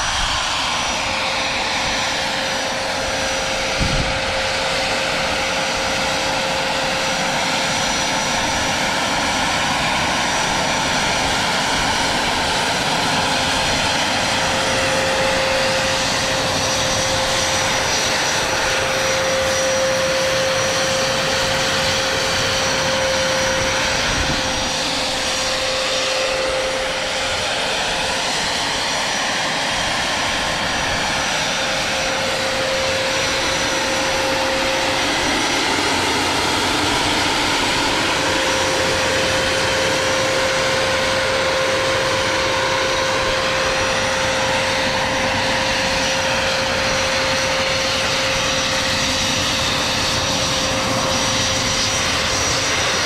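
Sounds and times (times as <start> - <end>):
gas turbine engine whine: 0.0 - 53.0.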